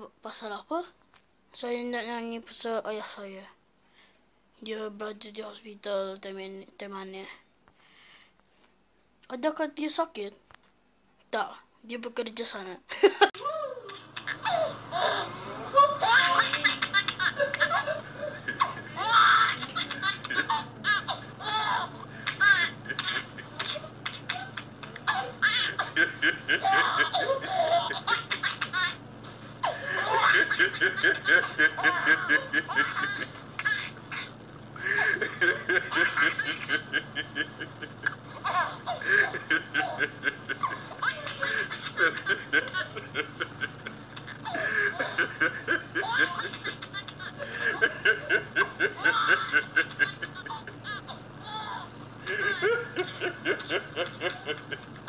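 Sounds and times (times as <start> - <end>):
man laughing: 12.9 - 28.7, 29.6 - 33.4, 34.8 - 55.0
baby giggling: 13.4 - 29.0, 29.6 - 54.9.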